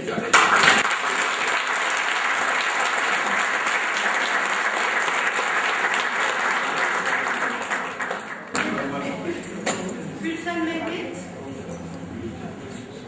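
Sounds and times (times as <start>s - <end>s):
audience applauding: 0.3s - 9.0s.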